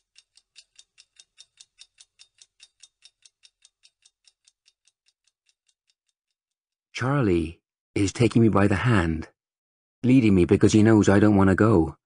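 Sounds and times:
clock ticking: 0:00.0 - 0:06.3.

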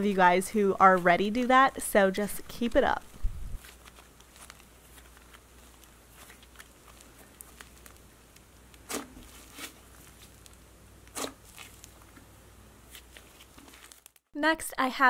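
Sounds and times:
slime crackling: 0:02.7 - 0:14.3
slime squishing: 0:03.1 - 0:14.2.

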